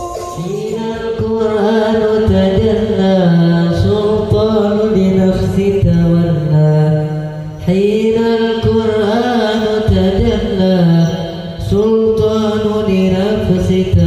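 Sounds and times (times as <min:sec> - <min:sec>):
men chanting: 0:00.0 - 0:07.0.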